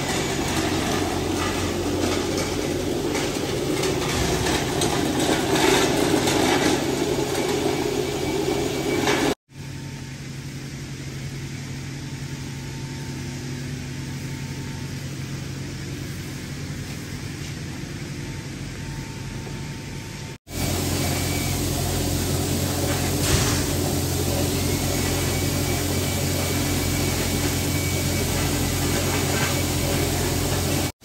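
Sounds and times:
machine humming: 0.0s - 10.2s.

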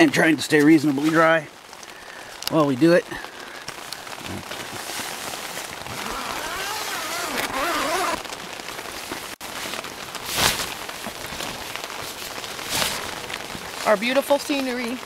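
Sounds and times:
rain on tent fabric: 0.0s - 15.0s
sharp rustle: 9.0s - 14.0s.

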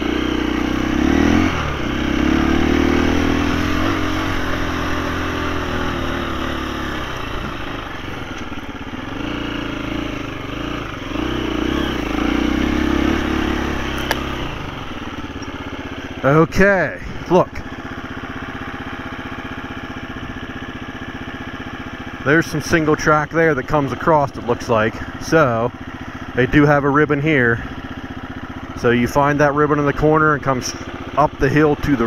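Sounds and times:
dirt bike engine revving: 0.0s - 32.0s
sharp click: 13.9s - 14.4s.

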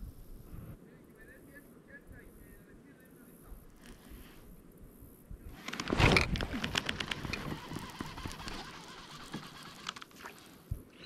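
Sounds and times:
fishing reel spool whirring and clicking: 5.5s - 10.7s.

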